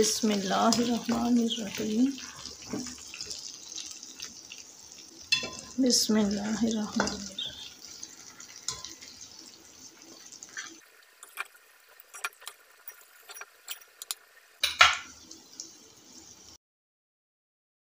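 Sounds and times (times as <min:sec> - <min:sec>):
spoon clanking on pot: 0:05.3 - 0:05.8, 0:08.6 - 0:09.2, 0:12.1 - 0:15.2
spoon scraping metal pot: 0:05.3 - 0:05.8, 0:07.0 - 0:09.3, 0:10.0 - 0:15.1.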